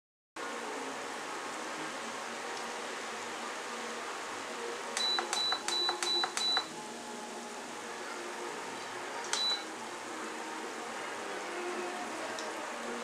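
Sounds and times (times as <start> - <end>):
cooktop control beeps: 5.0 - 6.7, 9.4 - 9.7.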